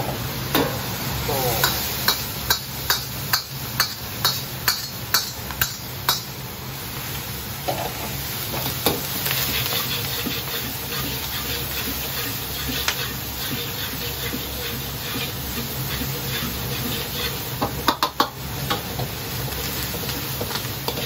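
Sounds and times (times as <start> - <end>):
food sizzling in wok: 0.0 - 21.0
gas burner roaring: 0.0 - 21.0.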